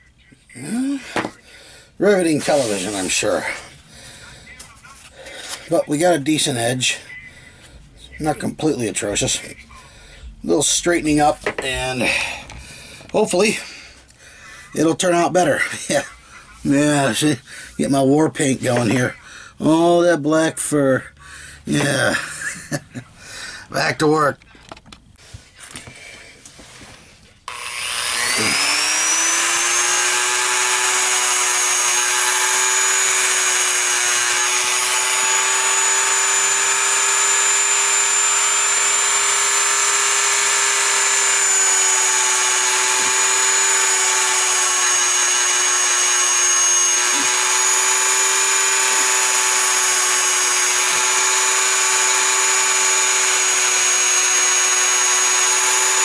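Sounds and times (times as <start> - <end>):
rotary tool whining: 27.5 - 56.0.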